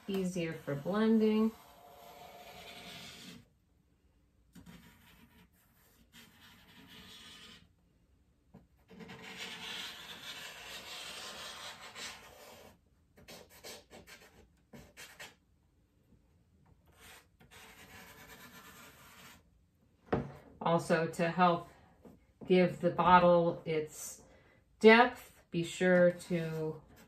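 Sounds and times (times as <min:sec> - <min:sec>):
charcoal scraping on paper: 0:00.0 - 0:03.5, 0:04.6 - 0:07.7, 0:08.8 - 0:15.4, 0:16.9 - 0:19.5.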